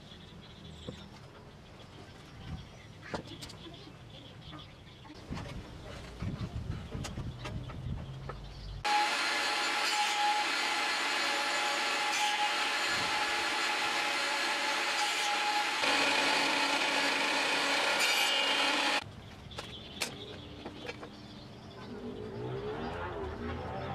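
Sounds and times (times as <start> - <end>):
table saw cutting wood: 8.8 - 19.0.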